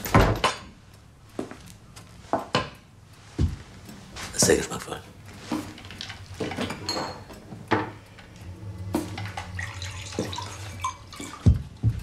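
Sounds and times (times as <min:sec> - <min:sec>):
low steady hum: 0:00.4 - 0:12.0
glassware and crockery clinking: 0:06.0 - 0:08.0
drink pouring: 0:09.2 - 0:11.6.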